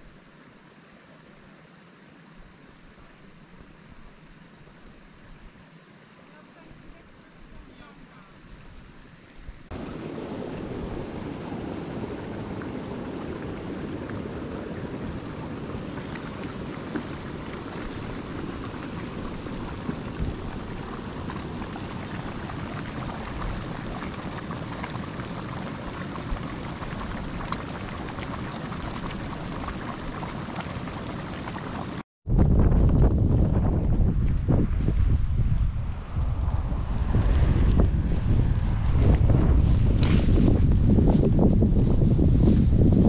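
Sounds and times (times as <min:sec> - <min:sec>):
mud pots bubbling and spitting: 0:09.7 - 0:32.0.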